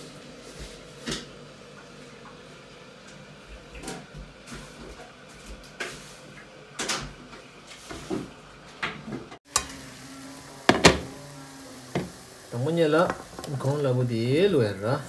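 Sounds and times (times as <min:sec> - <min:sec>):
hot oil bubbling in a wok: 0:09.5 - 0:15.0.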